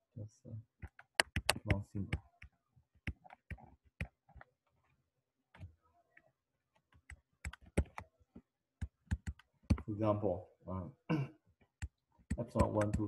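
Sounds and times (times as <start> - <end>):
stylus tapping on tablet: 0.8 - 4.5, 6.9 - 9.9, 11.6 - 13.0.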